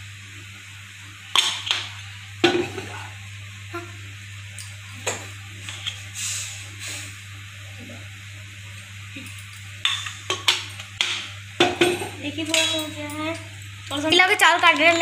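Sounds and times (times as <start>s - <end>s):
steady low hum: 0.0s - 15.0s
metal kitchenware clanking: 9.8s - 15.0s.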